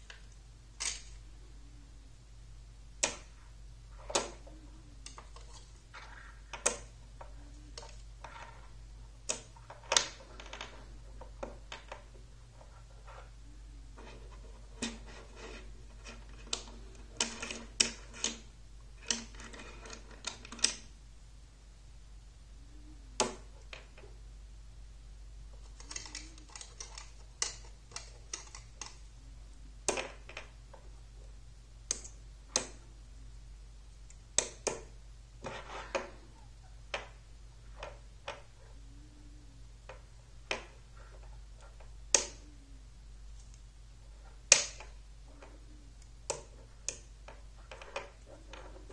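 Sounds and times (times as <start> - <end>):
magnetic rods and balls clicking: 2.9 - 20.9, 25.5 - 33.0, 39.8 - 42.7, 43.3 - 48.9.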